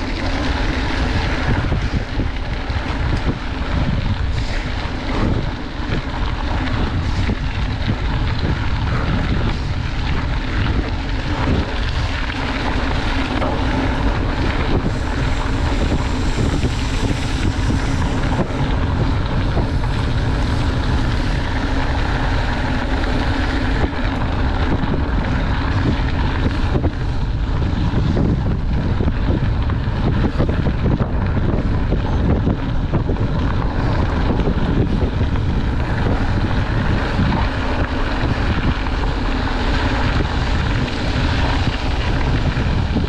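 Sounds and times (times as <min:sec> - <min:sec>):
bike knocking and rattling: 0:00.0 - 0:43.0
tyres rumbling on gravel: 0:00.0 - 0:43.0
wind rushing over microphone: 0:00.0 - 0:43.0.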